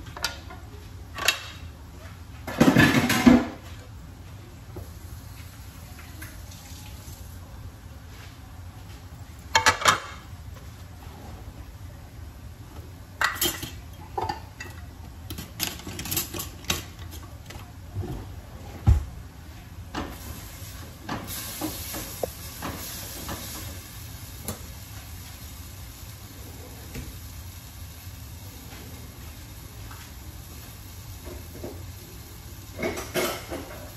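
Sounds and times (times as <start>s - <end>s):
plates and pans clattering: 2.5s - 3.6s, 13.2s - 14.8s, 32.8s - 33.8s
food sizzling in a pan: 20.0s - 33.9s.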